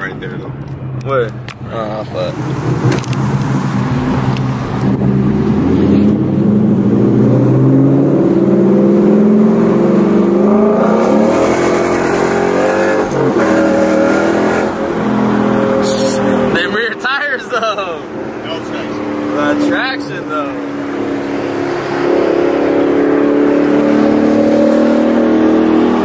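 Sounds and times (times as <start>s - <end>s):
car engine accelerating: 2.0s - 26.0s.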